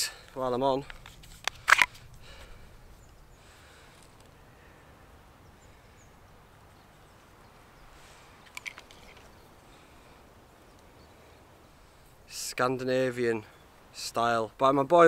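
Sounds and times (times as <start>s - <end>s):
faint bird chirps: 2.6s - 12.2s.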